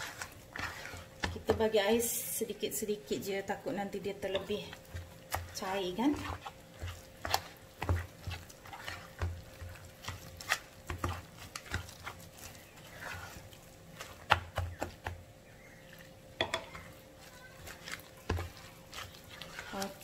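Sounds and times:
spoon stirring thick batter: 0:00.0 - 0:20.0.

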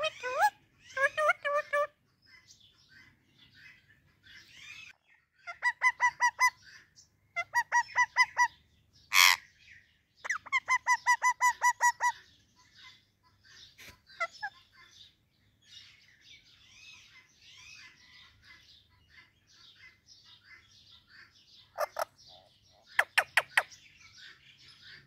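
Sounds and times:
parakeet harsh squawk: 0:00.0 - 0:01.9, 0:04.5 - 0:06.7, 0:07.4 - 0:09.4, 0:10.3 - 0:12.2, 0:21.8 - 0:22.1
parakeets chirping: 0:00.0 - 0:25.0.

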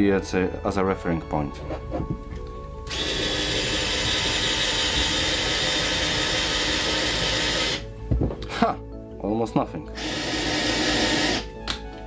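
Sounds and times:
cordless screwdriver running: 0:02.9 - 0:07.8, 0:10.0 - 0:11.5.

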